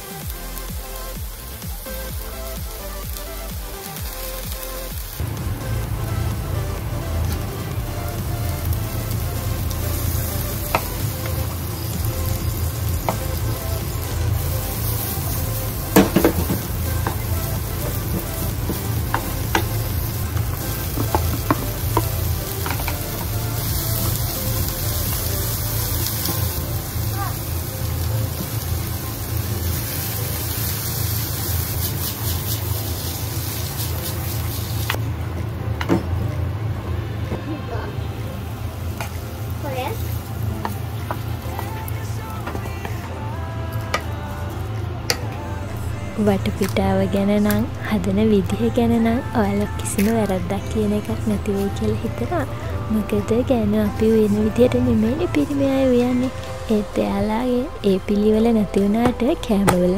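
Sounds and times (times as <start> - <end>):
vegetables sizzling in frying pan: 0.0 - 35.5, 37.6 - 43.0.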